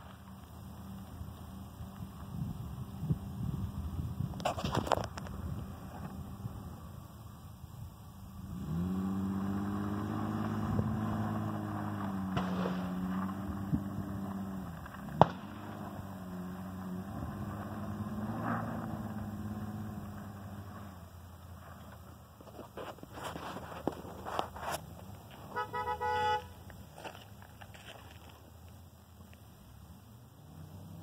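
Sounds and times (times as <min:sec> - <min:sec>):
truck engine under load: 0:08.4 - 0:28.4.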